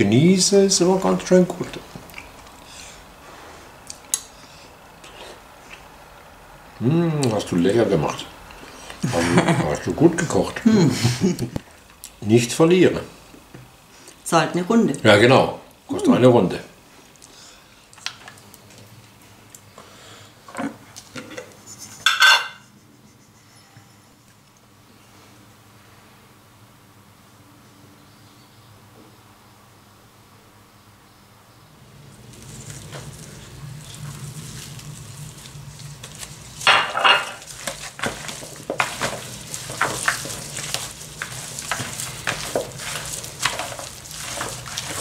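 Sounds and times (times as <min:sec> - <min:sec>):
glass and porcelain clinking on stone: 0:22.1 - 0:22.6, 0:36.7 - 0:37.4
wet squelching of kneaded meat: 0:32.1 - 0:36.7, 0:37.4 - 0:45.0.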